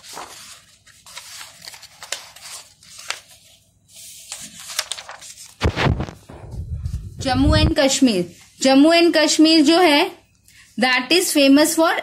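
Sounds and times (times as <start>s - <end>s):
pages rustling: 0.0s - 7.2s.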